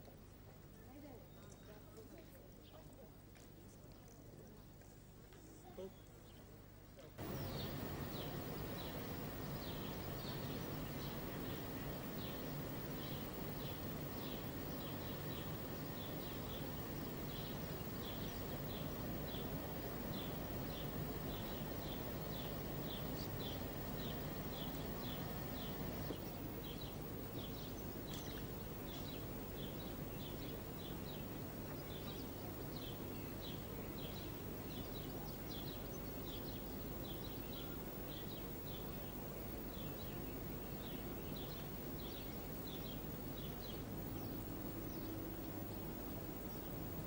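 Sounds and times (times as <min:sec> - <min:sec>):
low outdoor background noise: 0:00.0 - 0:47.0
small birds chirping: 0:07.2 - 0:47.0.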